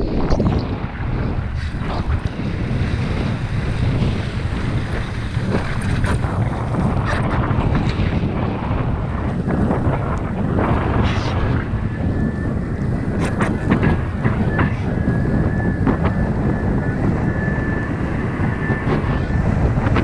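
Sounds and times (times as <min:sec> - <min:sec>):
wind buffeting microphone: 0:00.0 - 0:20.0
water rushing against board: 0:01.5 - 0:12.2.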